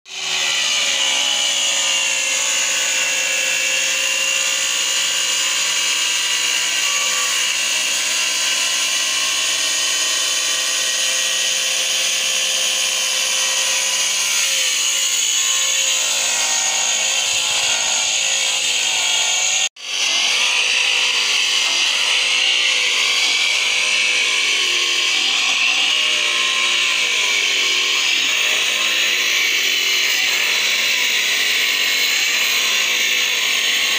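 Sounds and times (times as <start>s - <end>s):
angle grinder cutting stone: 0.1s - 33.9s.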